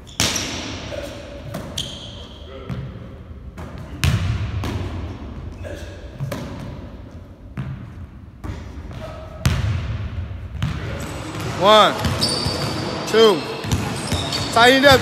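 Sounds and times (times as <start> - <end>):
basketball bouncing on wooden floor: 13.6 - 15.0.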